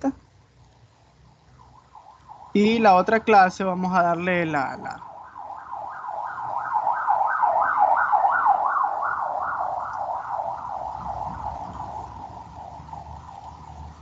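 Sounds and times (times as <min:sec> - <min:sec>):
emergency siren yelping: 0:01.2 - 0:14.0.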